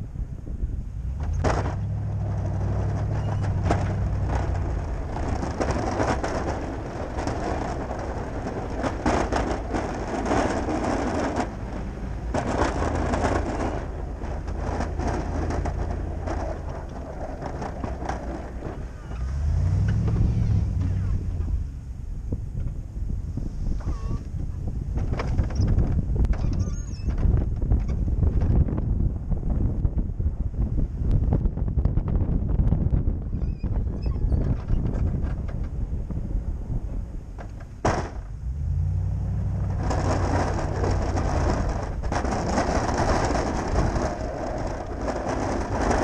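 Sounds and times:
pickup engine running: 0:00.0 - 0:26.3, 0:27.2 - 0:46.0
plow blade scraping snow: 0:01.0 - 0:21.8, 0:33.4 - 0:46.0.

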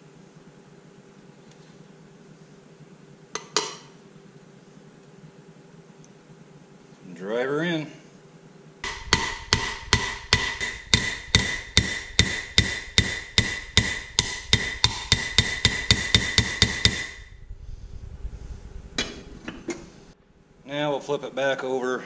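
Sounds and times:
hammer blows ringing on metal: 0:08.8 - 0:17.3.

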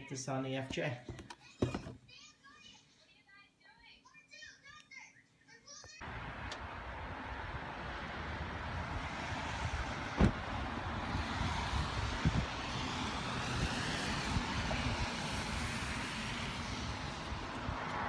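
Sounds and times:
vehicle rumble: 0:06.0 - 0:18.0.

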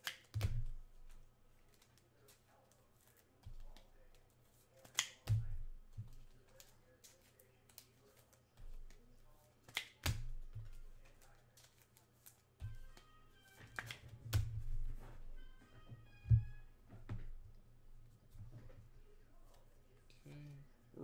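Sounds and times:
sharp snaps: 0:00.0 - 0:00.5, 0:04.8 - 0:05.3
cards thumping on table: 0:04.8 - 0:15.3.

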